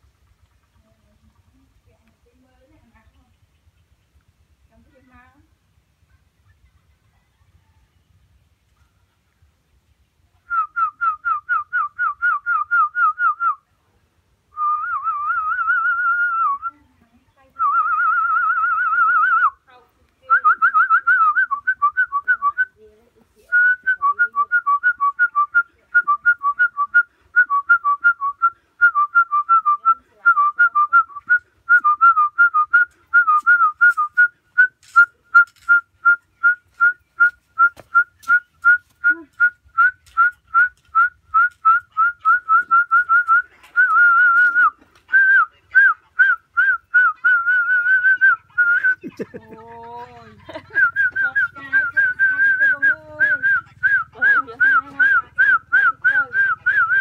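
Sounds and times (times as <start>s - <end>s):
person whistling a tune: 10.5s - 13.6s, 14.6s - 16.7s, 23.5s - 49.0s, 50.7s - 57.0s.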